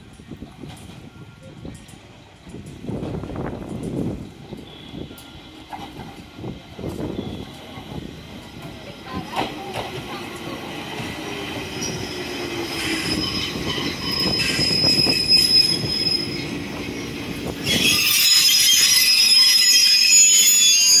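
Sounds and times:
wheels and brakes squealing: 0:11.7 - 0:21.0.

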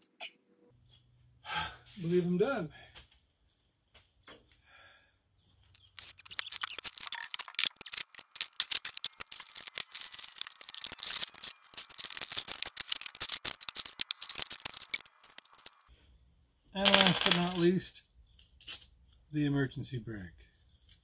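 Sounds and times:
metal parts clattering on workbench: 0:16.8 - 0:17.7.

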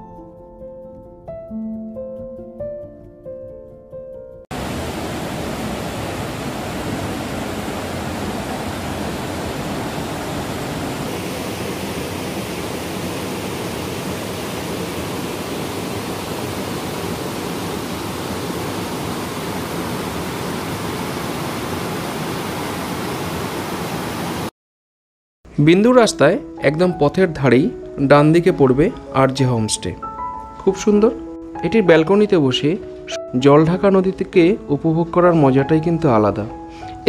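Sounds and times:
water rushing over boulders: 0:04.5 - 0:24.5.

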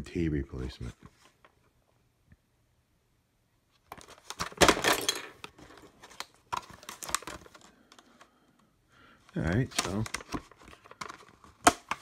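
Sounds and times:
plastic packaging crackling: 0:03.9 - 0:08.0, 0:09.4 - 0:12.0.

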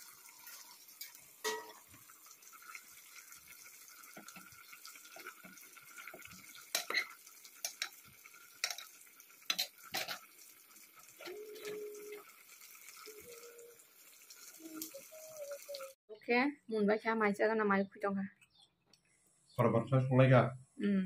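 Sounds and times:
spoon stirring cabbage in pot: 0:00.0 - 0:13.3
spoon clinking against pot: 0:01.4 - 0:02.0.

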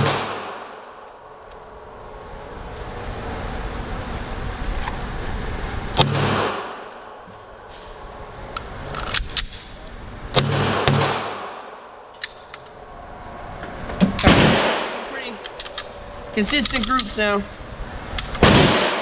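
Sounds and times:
metallic clicks of pistol handling: 0:08.5 - 0:09.7, 0:12.1 - 0:12.8, 0:15.4 - 0:17.2, 0:18.1 - 0:18.4
pistol shots echoing indoors: 0:10.4 - 0:11.8, 0:14.2 - 0:15.0, 0:18.4 - 0:19.0.

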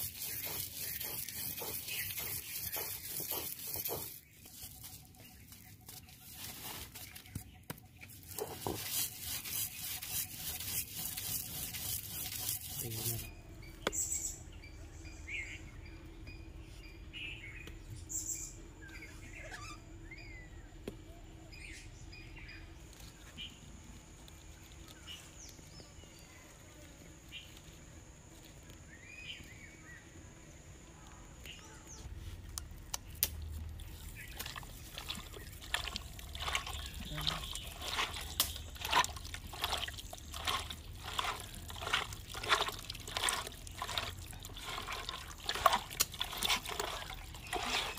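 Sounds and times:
wet squelching of kneaded chicken: 0:00.0 - 0:07.3, 0:32.7 - 0:47.9
birds chirping: 0:00.0 - 0:23.7, 0:28.6 - 0:47.9.

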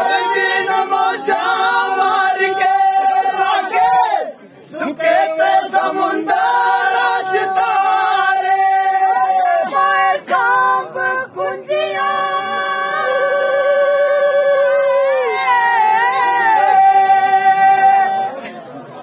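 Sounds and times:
men singing unaccompanied: 0:00.0 - 0:04.0, 0:04.7 - 0:18.4.

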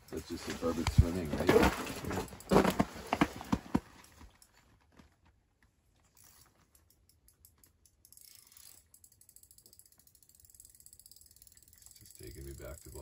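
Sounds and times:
fishing reel ticking: 0:06.1 - 0:13.0.

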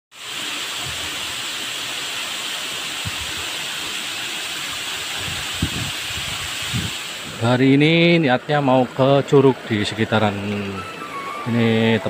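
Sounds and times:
waterfall rushing: 0:00.2 - 0:12.0.

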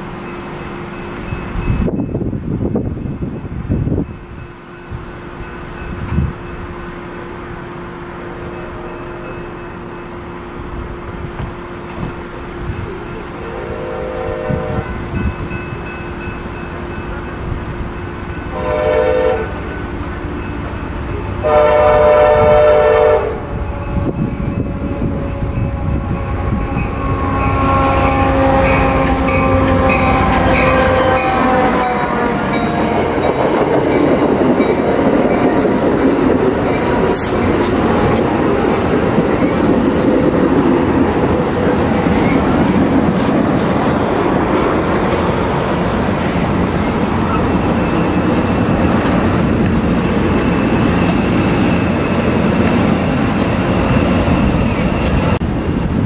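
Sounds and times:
locomotive engine passing: 0:04.9 - 0:56.0
train wheels rumbling and clicking: 0:10.6 - 0:13.2, 0:23.3 - 0:56.0
train horn blasts: 0:13.0 - 0:15.2, 0:18.5 - 0:24.8, 0:26.3 - 0:33.5.

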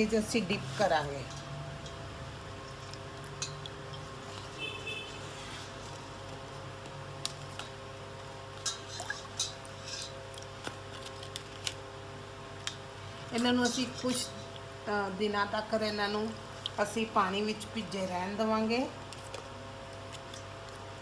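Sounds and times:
water splashing and sloshing: 0:01.9 - 0:06.4, 0:07.4 - 0:11.3, 0:16.0 - 0:17.4.

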